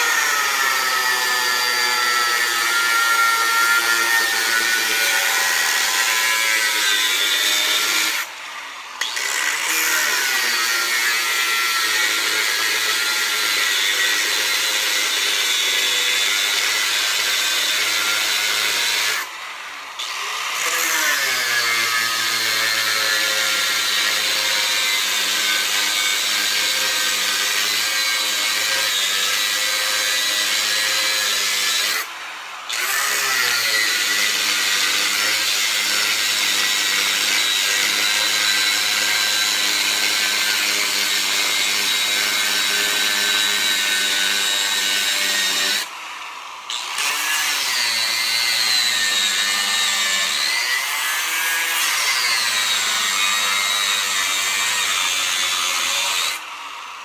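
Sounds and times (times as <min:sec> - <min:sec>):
angle grinder cutting metal: 0:00.0 - 0:57.0.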